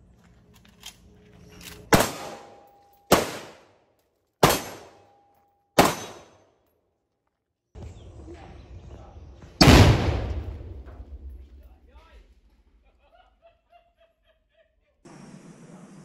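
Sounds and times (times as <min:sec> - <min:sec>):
rifle shots echoing: 0:01.9 - 0:03.8, 0:04.4 - 0:05.1, 0:05.8 - 0:06.4, 0:09.6 - 0:11.4.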